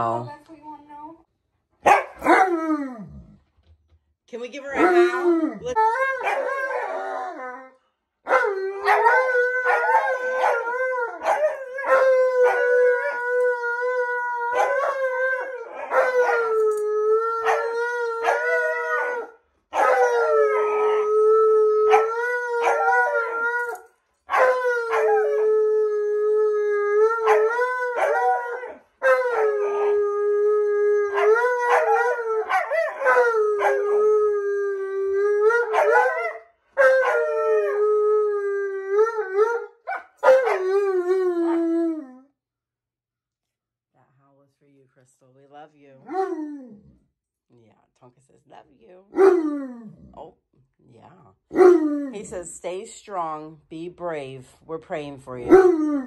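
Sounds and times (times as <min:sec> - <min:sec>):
dogs howling: 0:04.8 - 0:42.2, 0:46.0 - 0:46.9, 0:49.2 - 0:50.1, 0:51.5 - 0:52.2.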